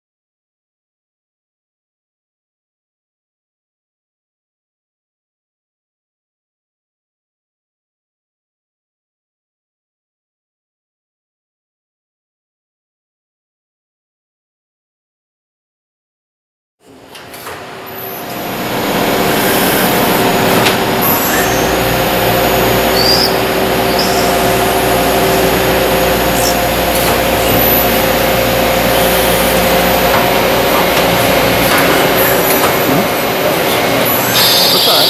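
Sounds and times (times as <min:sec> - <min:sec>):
lathe spindle whine: 0:17.9 - 0:35.0.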